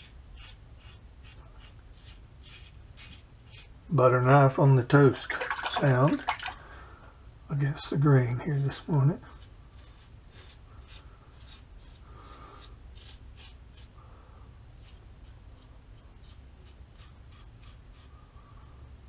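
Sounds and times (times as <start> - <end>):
razor scraping stubble: 0.0 - 3.7, 8.4 - 14.0, 14.8 - 18.2.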